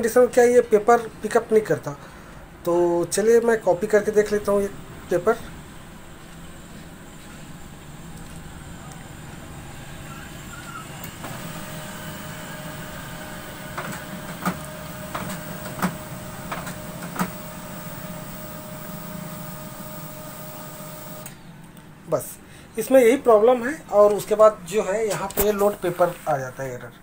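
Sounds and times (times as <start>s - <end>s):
printer motor whine: 4.6s - 21.6s.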